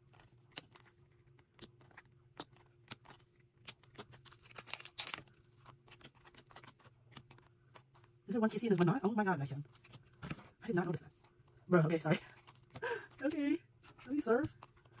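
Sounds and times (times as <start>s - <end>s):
cards sliding and shuffling: 0.0s - 9.1s, 9.7s - 11.4s
low steady hum: 0.0s - 15.0s.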